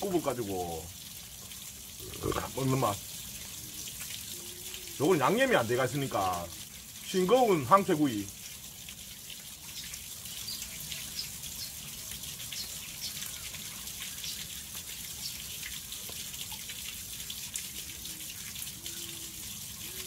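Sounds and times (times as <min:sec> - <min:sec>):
running water: 0:00.0 - 0:20.0
man chewing: 0:02.0 - 0:02.5.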